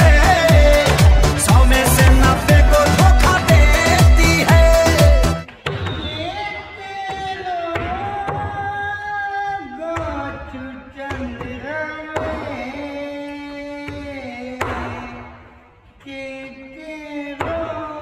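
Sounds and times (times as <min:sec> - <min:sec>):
sharp percussive hits: 0:00.0 - 0:05.1
instrumental backing: 0:00.0 - 0:05.5.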